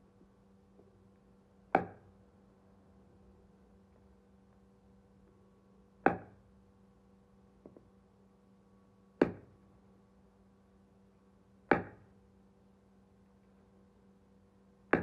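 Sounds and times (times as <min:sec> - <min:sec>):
cleaver chopping into wood: 0:01.8 - 0:02.0, 0:06.1 - 0:06.4, 0:09.2 - 0:09.5, 0:11.7 - 0:12.0.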